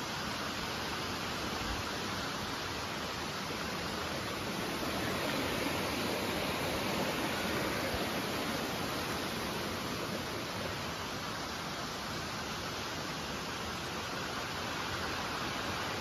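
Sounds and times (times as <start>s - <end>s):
stream flowing over rocks: 0.0s - 16.0s.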